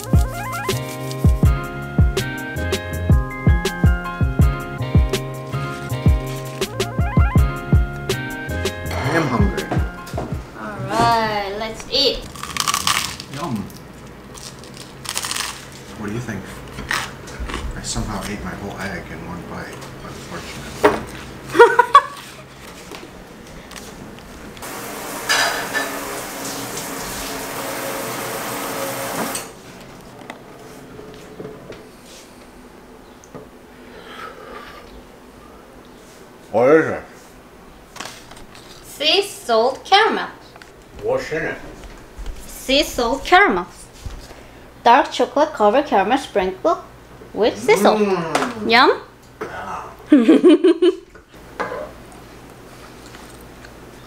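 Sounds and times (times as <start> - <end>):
man humming approval: 8.7 - 10.0, 47.6 - 48.6
tap water running into sink: 24.6 - 29.5.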